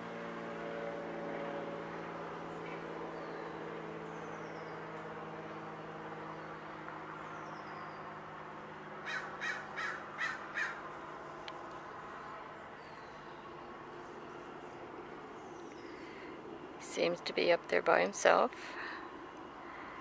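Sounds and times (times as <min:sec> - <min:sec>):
steady low hum: 0:00.0 - 0:20.0
crow cawing: 0:09.0 - 0:10.8.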